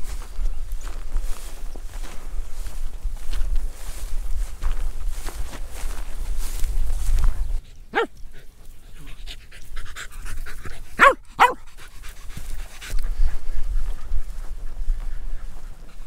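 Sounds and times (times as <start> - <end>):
dog panting: 7.6 - 16.0.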